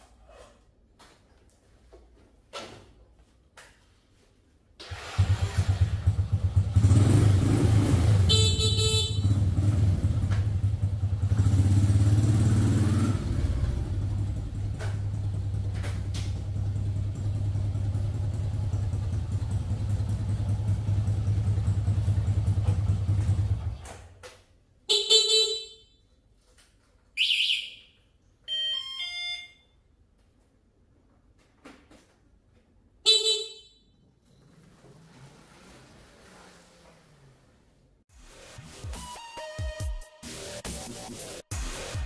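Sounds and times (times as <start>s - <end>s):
motorcycle engine running: 5.2s - 23.9s.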